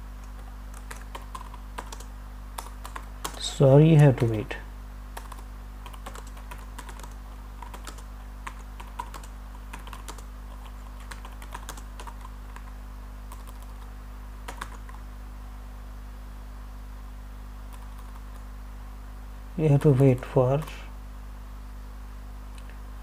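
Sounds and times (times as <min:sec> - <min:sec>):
steady low hum: 0:00.0 - 0:23.0
computer keyboard typing: 0:00.2 - 0:04.4, 0:05.2 - 0:15.0, 0:17.7 - 0:18.4.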